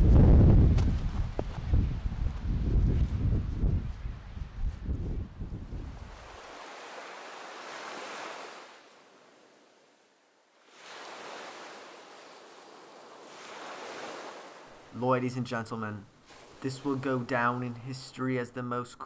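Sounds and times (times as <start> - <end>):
wind rumble on microphone: 0.0 - 6.5
ocean waves breaking: 5.6 - 18.0.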